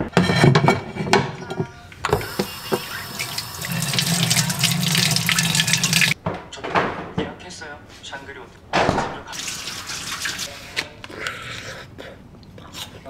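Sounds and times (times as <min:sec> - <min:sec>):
faucet running water: 0:02.1 - 0:06.2, 0:09.4 - 0:10.5
water splashing onto plate: 0:02.6 - 0:06.2.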